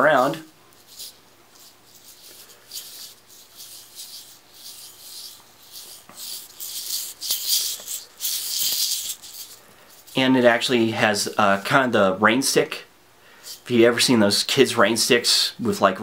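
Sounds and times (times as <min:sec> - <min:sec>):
beads rattling in fidget spinner: 0:00.8 - 0:10.2.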